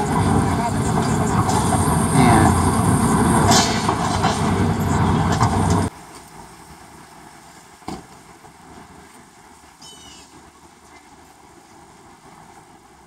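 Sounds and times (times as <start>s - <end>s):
diesel demolition machinery: 0.0s - 5.9s
faint outdoor background: 0.0s - 13.0s.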